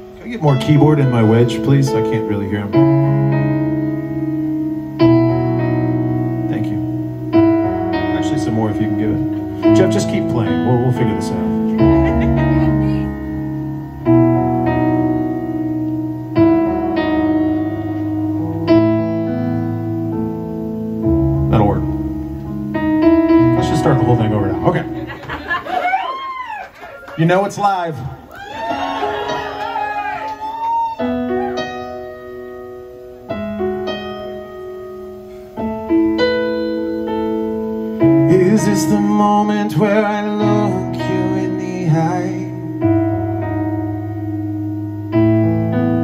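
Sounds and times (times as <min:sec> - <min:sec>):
keyboard piano chords: 0:00.0 - 0:46.0.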